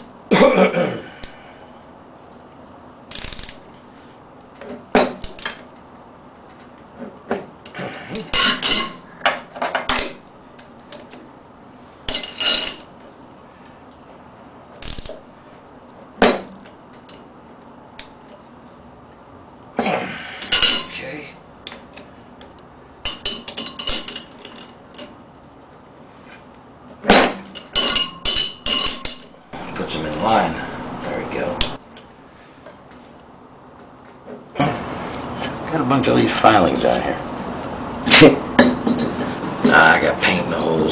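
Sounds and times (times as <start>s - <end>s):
wrench clinking on metal: 12.1s - 12.9s, 27.4s - 29.3s.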